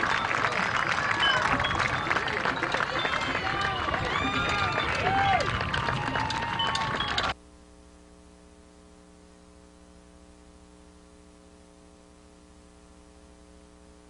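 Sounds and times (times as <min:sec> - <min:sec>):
crowd noise: 0:00.0 - 0:07.4.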